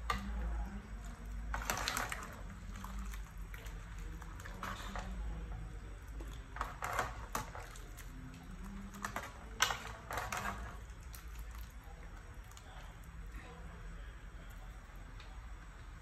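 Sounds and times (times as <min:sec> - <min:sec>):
ladle clinking and scraping pot: 0:06.4 - 0:07.8, 0:08.9 - 0:10.9.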